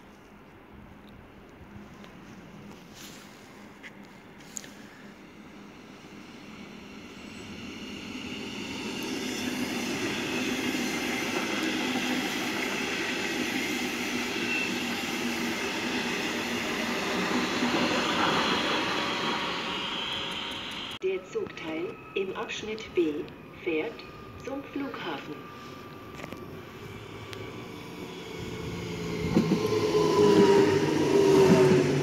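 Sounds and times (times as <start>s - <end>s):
train wheels rolling on rails: 5.9s - 21.0s, 25.4s - 32.0s.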